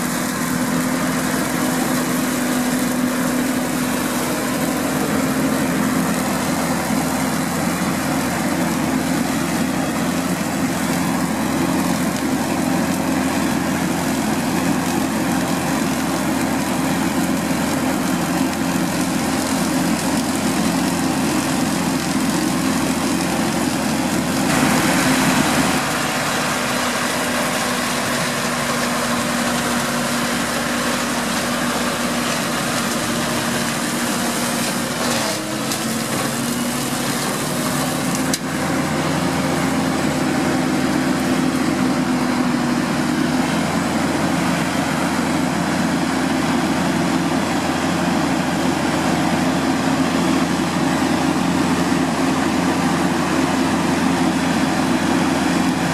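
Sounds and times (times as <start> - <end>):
tractor diesel engine running: 0.0 - 55.9.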